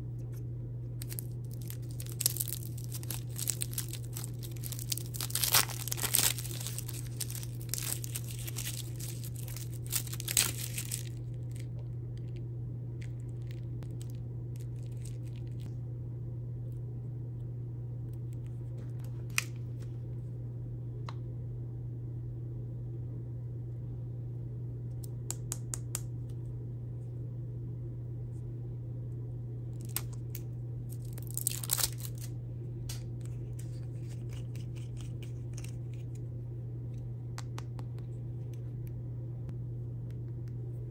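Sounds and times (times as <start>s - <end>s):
steady low hum: 0.0s - 40.9s
plastic packaging clicks and rustles: 1.0s - 11.8s, 30.9s - 32.3s
plastic wrapper crinkling: 1.0s - 12.4s, 13.0s - 15.7s, 29.8s - 32.3s.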